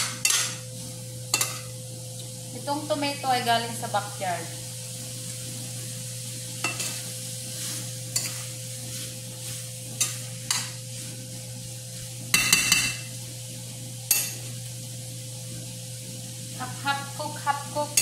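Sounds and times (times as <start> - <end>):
metal spoon scraping a pan: 0.0 - 0.6, 1.3 - 1.7, 6.6 - 11.1, 14.1 - 14.4
steady hum: 0.0 - 18.0
vegetables sizzling in a pan: 0.0 - 18.0.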